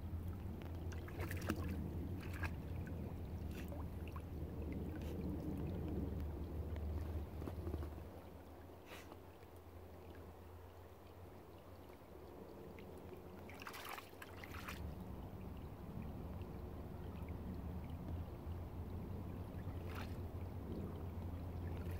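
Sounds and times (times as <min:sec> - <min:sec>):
low steady rumble: 0:00.0 - 0:21.9
dog splashing in puddle: 0:00.9 - 0:04.2, 0:13.5 - 0:14.8.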